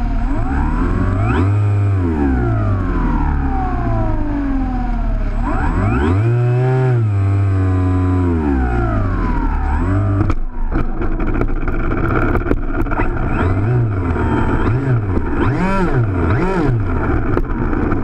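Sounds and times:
electric motor and propeller whining: 0.0 - 18.0
rapid clicks and knocks: 10.2 - 15.4.

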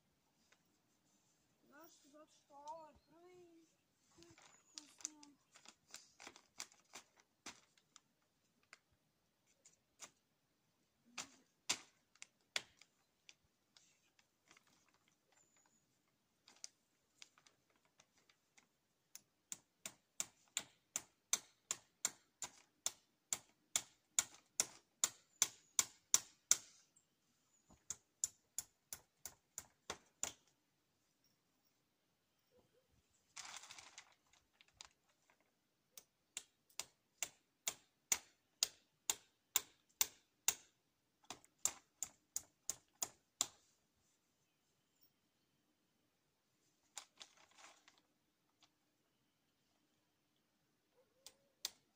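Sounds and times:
hammer driving nails into wood: 19.5 - 26.7.

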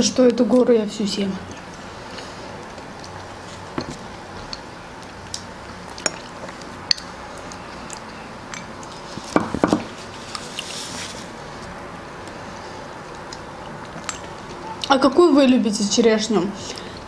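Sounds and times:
soft mouth eating sounds: 1.4 - 15.0.

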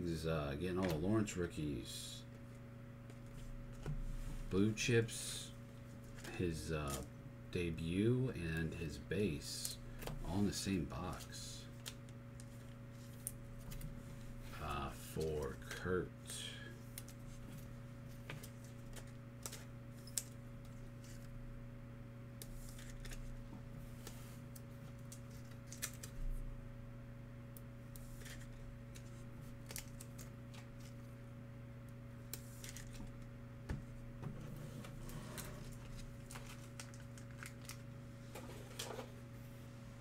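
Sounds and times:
cards and plastic sleeves rustling: 0.7 - 1.4, 5.8 - 7.1, 9.2 - 21.3, 22.4 - 26.2, 27.9 - 31.1, 32.3 - 33.3, 34.6 - 39.2.

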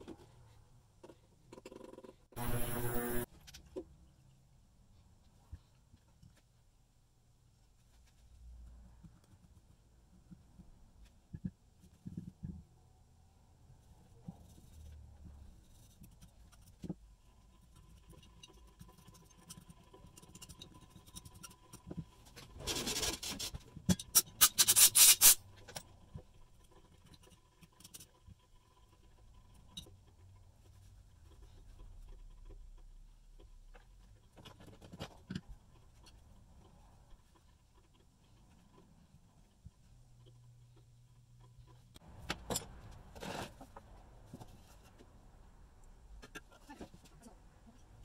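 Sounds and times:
hand scrubbing metal part: 24.1 - 25.4.

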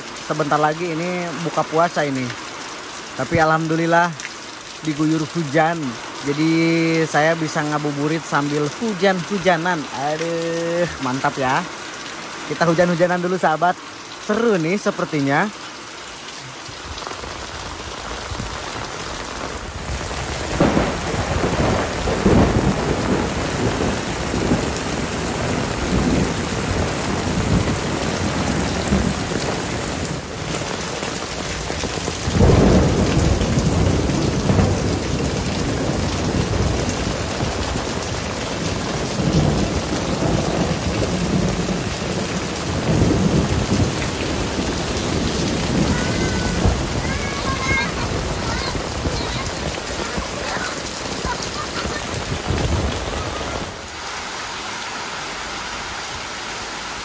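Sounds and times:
heavy rain pouring: 0.0 - 57.0
thunder rumbles: 17.0 - 53.9.

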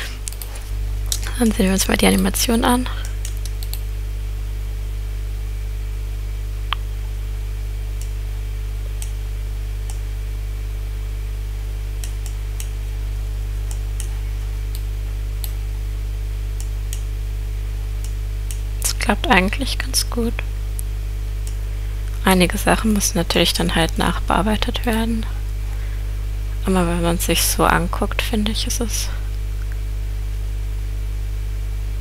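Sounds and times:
low electrical hum: 0.0 - 32.0
computer mouse clicks: 0.2 - 1.3.

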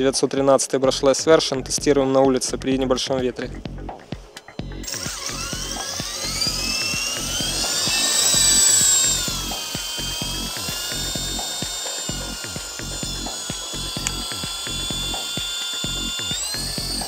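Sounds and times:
rc helicopter rotor whining: 4.0 - 17.0.

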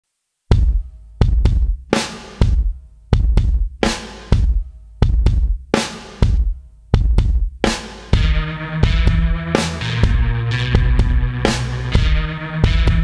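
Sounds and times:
heavy drum beat with cymbals: 0.5 - 13.0
sustained bass and chords: 6.2 - 13.0.

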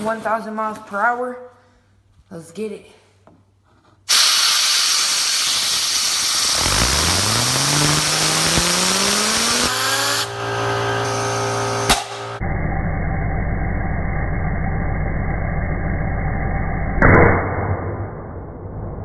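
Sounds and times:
compressed air hissing: 4.1 - 10.4
fidget spinner whine: 4.2 - 17.0.

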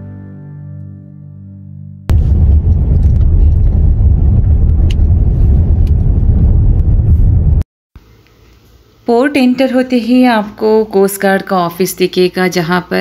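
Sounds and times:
road and wind noise in car: 2.1 - 7.6.

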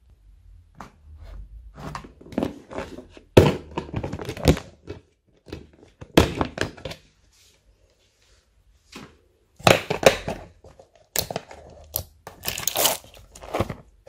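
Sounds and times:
plastic tubs knocking: 1.8 - 7.0
slime crackling: 11.1 - 13.4.

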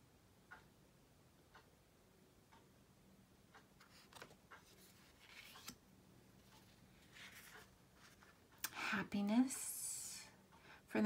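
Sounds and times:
cards sliding and tapping: 3.8 - 5.8, 6.6 - 8.4.

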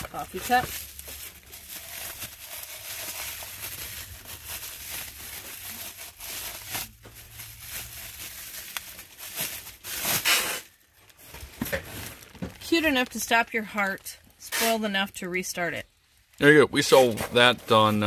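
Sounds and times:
packaging crinkling and rustling: 0.0 - 14.3.

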